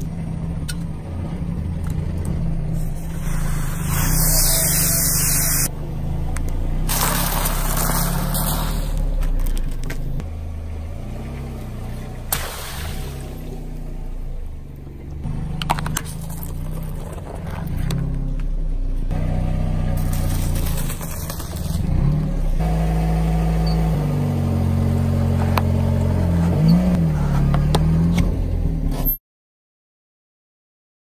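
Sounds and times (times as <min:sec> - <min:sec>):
car engine running at low speed: 0:00.0 - 0:29.2
things crushed under tyres: 0:06.8 - 0:10.2, 0:20.0 - 0:22.1.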